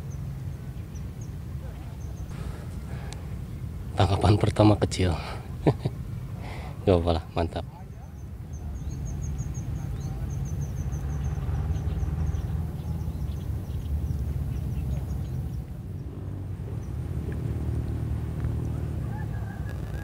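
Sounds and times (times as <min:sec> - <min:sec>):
small bird chirping: 0:07.9 - 0:17.0.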